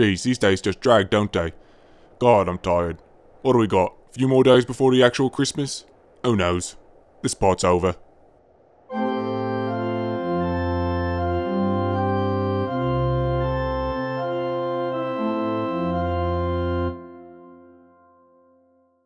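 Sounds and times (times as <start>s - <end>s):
organ-like keyboard chords: 8.9s - 18.6s.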